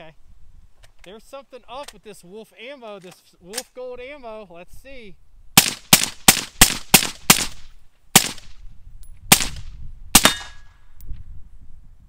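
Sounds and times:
rifle gunshots: 0:05.6 - 0:08.6, 0:09.3 - 0:10.6.

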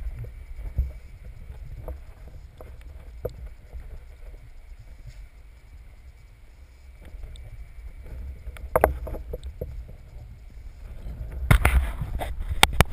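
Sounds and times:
low underwater rumble: 0:00.0 - 0:12.2.

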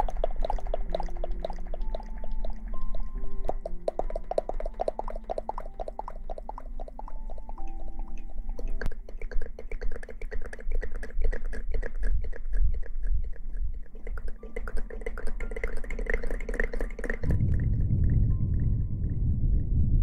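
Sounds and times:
wet mouth clicks and smacks: 0:00.0 - 0:17.4
low rumbling noise: 0:17.2 - 0:20.0.

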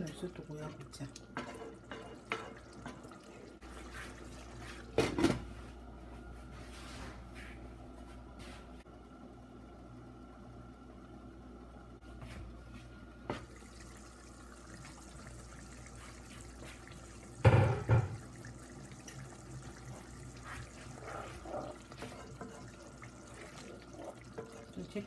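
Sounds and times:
sauce bubbling in a pot: 0:00.6 - 0:05.0, 0:13.3 - 0:25.0.

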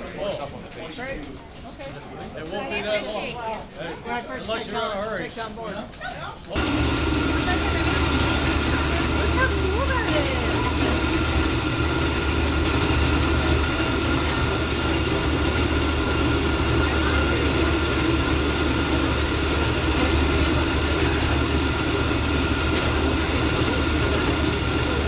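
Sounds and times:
mill machinery rumbling: 0:06.5 - 0:25.0.

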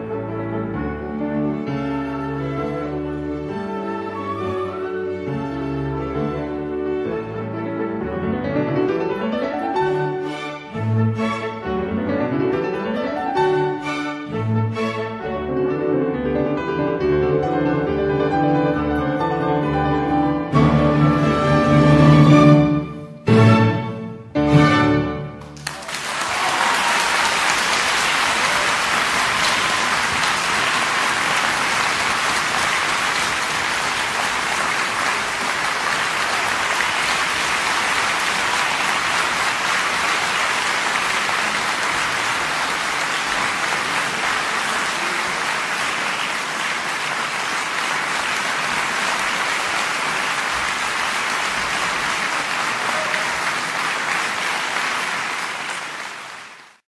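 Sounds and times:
audience applauding: 0:25.4 - 0:56.8.

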